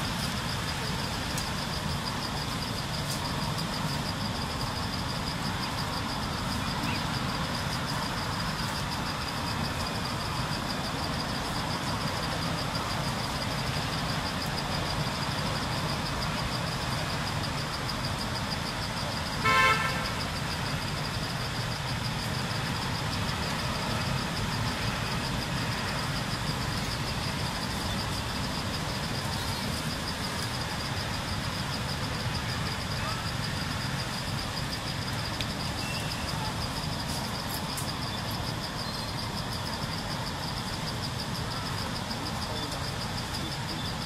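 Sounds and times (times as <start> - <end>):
vehicle horn toot: 19.4 - 20.2.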